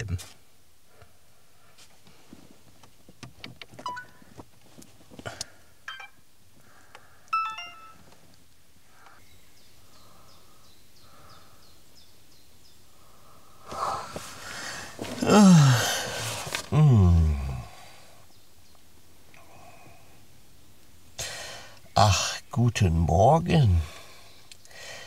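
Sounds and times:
faint steady hiss: 0:00.0 - 0:25.0
short electronic beeps: 0:03.8 - 0:04.1, 0:05.9 - 0:06.2, 0:07.3 - 0:08.0.

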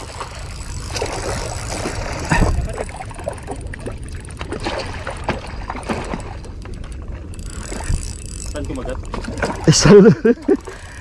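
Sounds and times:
fishing reel cranking: 0:00.0 - 0:05.3, 0:05.9 - 0:11.0
low wind rumble on microphone: 0:00.0 - 0:11.0.

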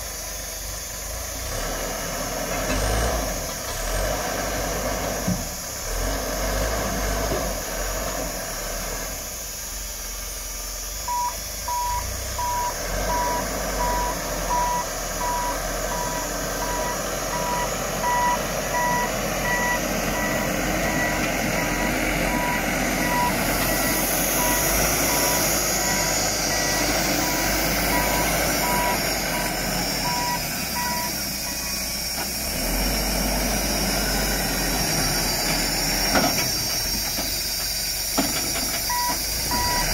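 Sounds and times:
wheel loader engine running: 0:00.0 - 0:39.9
reversing alarm beeping: 0:11.0 - 0:32.0, 0:38.9 - 0:39.9.

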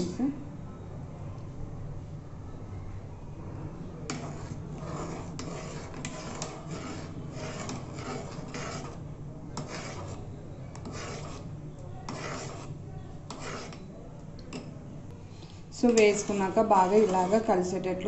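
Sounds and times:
steady low hum: 0:00.0 - 0:18.0
metal spoon scraping metal pot: 0:04.1 - 0:13.9, 0:15.8 - 0:17.8.

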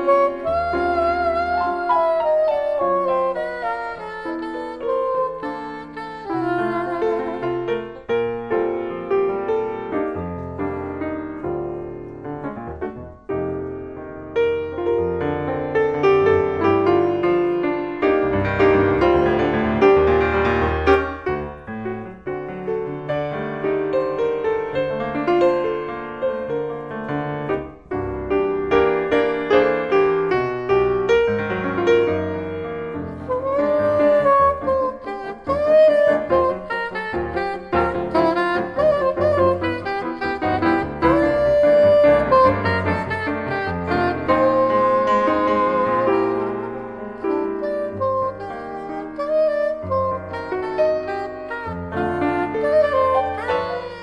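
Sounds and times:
grand piano chords: 0:00.0 - 0:54.0
saxophone long held note: 0:03.1 - 0:07.5.

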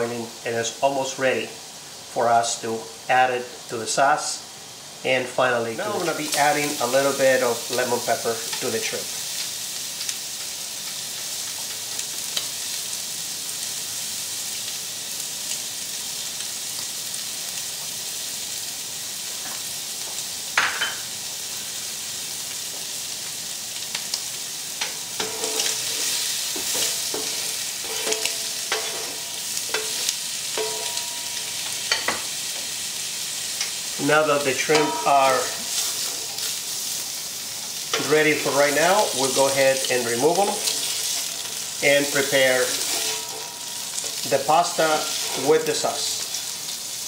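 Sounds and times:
shrimp sizzling in oil: 0:00.0 - 0:47.0
spatula scraping a pan: 0:24.8 - 0:32.2, 0:38.8 - 0:45.7.

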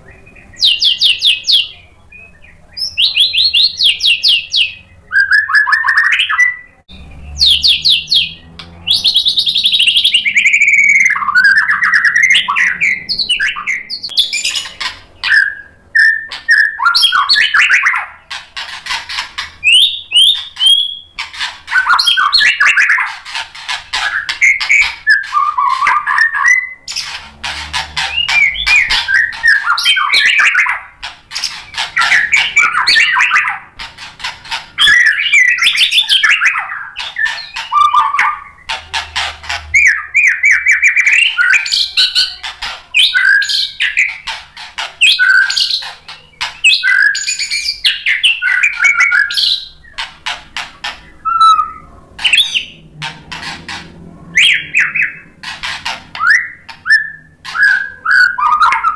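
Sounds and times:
bird singing whistled phrases: 0:00.0 - 0:18.2, 0:19.6 - 0:21.1, 0:21.7 - 0:23.1, 0:24.0 - 0:27.0, 0:28.1 - 0:30.9, 0:39.8 - 0:42.4, 0:43.0 - 0:44.2, 0:45.0 - 0:49.9, 0:51.2 - 0:52.8, 0:56.2 - 0:58.9.

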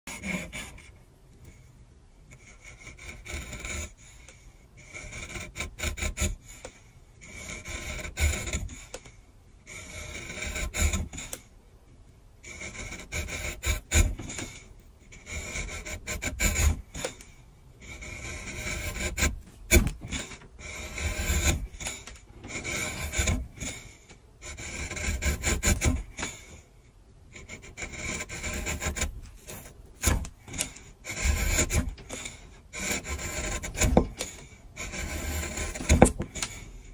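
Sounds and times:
chisel scraping on abrasive: 0:00.1 - 0:01.6, 0:02.3 - 0:11.5, 0:12.4 - 0:26.7, 0:27.3 - 0:36.9.

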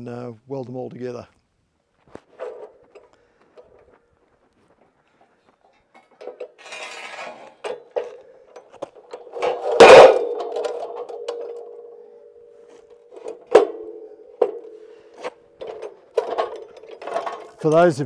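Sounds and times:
light metal clicks and knocks: 0:05.7 - 0:06.6, 0:12.9 - 0:18.0
steel clanking and ringing: 0:07.6 - 0:17.6.

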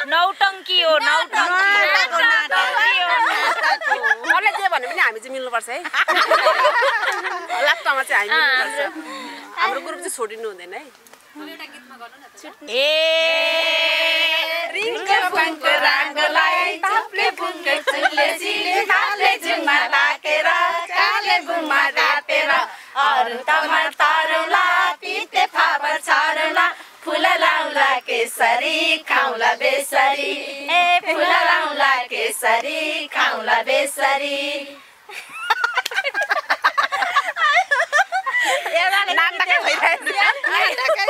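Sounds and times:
women singing unaccompanied: 0:00.0 - 0:05.4, 0:12.6 - 0:35.0, 0:38.4 - 0:41.0.

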